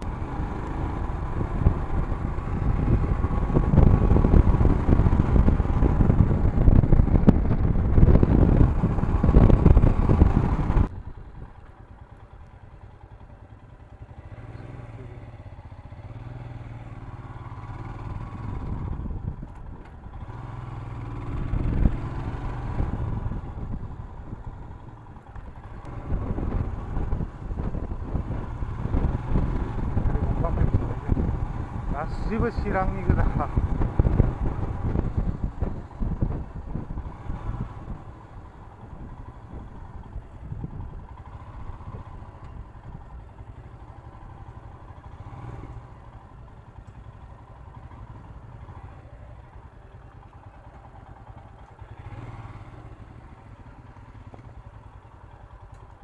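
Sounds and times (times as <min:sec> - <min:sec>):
wind buffeting: 0:00.0 - 0:11.6, 0:17.7 - 0:44.7
motorcycle engine: 0:00.0 - 0:56.0.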